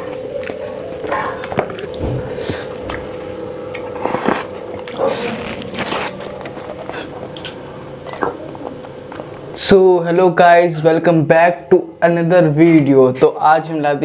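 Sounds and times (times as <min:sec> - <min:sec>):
chewing and wet mouth sounds: 0:00.0 - 0:09.2
faint hum: 0:00.0 - 0:14.0.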